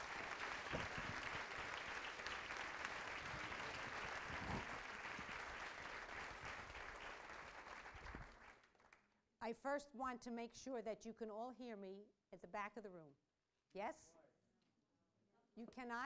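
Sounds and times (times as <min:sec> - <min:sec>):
audience applauding: 0:00.0 - 0:09.0.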